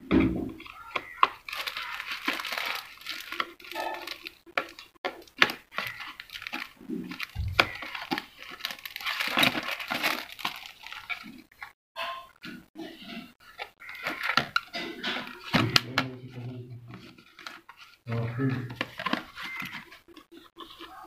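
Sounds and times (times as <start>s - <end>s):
dull thumps: 7.4s - 7.9s
brush handles scraping card: 12.8s - 21.0s.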